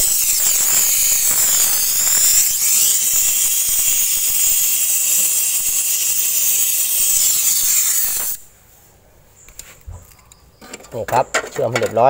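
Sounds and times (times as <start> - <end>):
torch flame hissing: 0.0 - 8.5.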